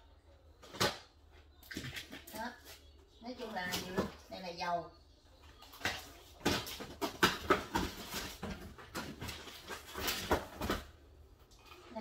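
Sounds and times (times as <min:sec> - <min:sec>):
boxes knocking: 0:05.8 - 0:10.9.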